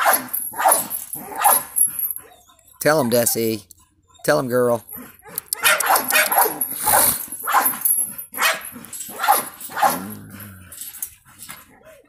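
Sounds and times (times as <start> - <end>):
dog barking: 0.0 - 2.4, 5.0 - 10.2.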